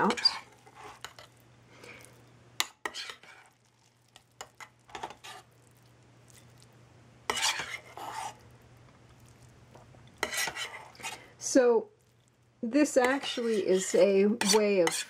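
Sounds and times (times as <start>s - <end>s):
metal spoon scraping a steel pot: 0.0s - 1.3s, 2.8s - 3.5s, 7.3s - 8.4s, 10.2s - 11.2s, 13.0s - 15.0s.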